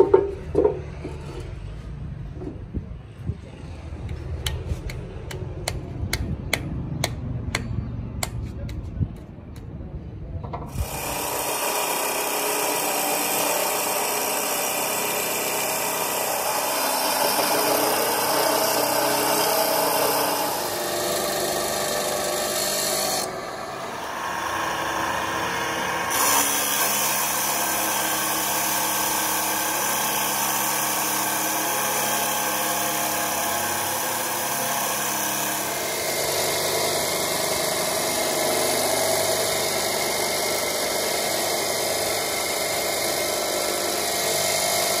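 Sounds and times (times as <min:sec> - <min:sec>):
power tool grinding metal: 0:10.7 - 0:45.0.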